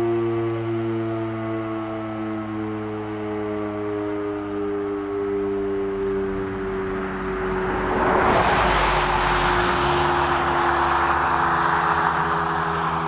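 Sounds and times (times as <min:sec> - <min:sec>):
siren winding down: 0:00.0 - 0:13.0
car passing with tyre noise: 0:05.8 - 0:13.0.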